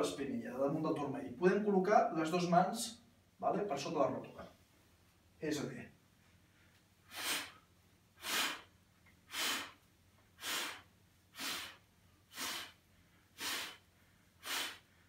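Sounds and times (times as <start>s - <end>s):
man breathing out forcefully: 7.1s - 8.7s, 9.3s - 9.8s, 10.4s - 15.0s.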